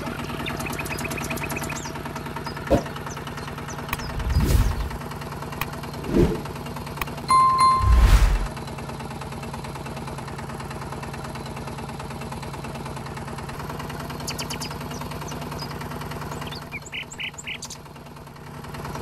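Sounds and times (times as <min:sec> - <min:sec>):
tractor engine running: 0:00.0 - 0:19.0
bird chirps: 0:00.2 - 0:05.0, 0:14.2 - 0:17.8.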